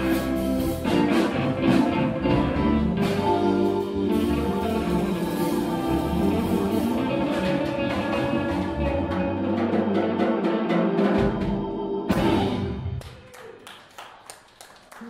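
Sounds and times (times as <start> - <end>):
live band playing: 0.0 - 13.0.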